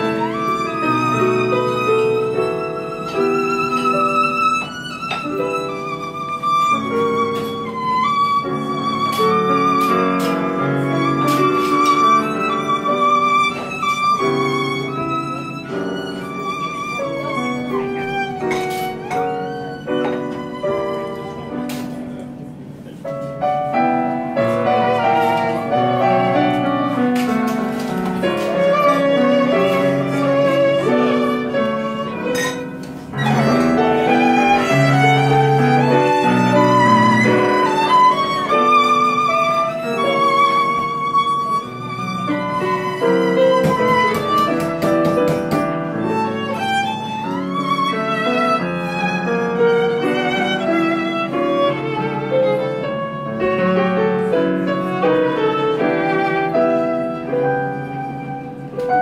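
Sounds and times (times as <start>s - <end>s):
piano accompaniment: 0.0s - 59.0s
violin melody: 0.0s - 59.0s.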